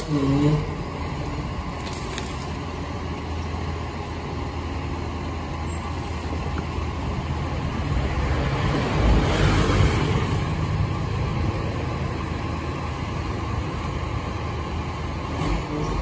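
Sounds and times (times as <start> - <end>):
garbage truck engine idling: 0.0 - 9.2.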